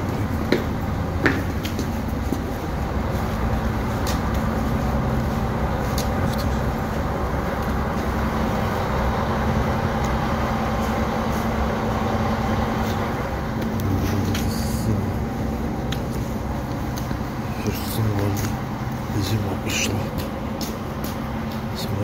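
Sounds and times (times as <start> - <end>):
low mechanical hum and rumble: 0.0 - 22.0.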